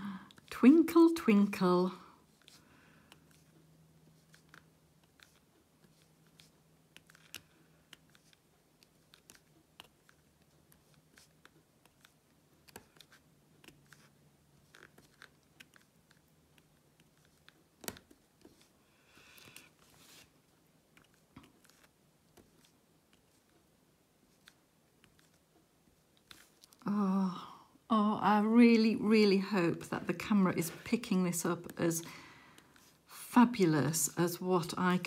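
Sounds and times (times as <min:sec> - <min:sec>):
pen clicking and tapping: 0:04.2 - 0:18.6.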